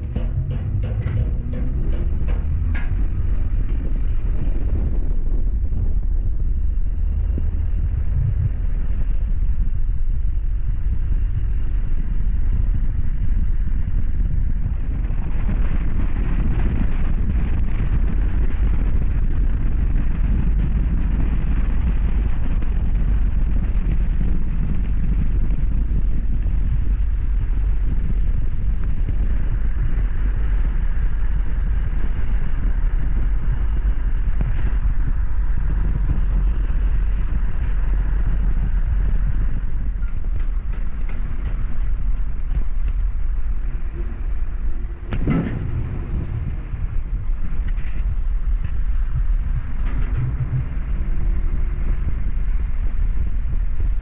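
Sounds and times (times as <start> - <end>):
vehicle driving rumble: 0.0 - 54.0.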